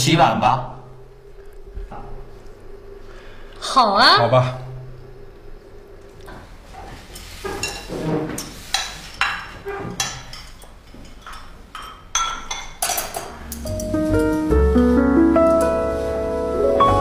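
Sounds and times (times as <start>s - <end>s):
dishes and cutlery clinking: 7.0s - 14.5s.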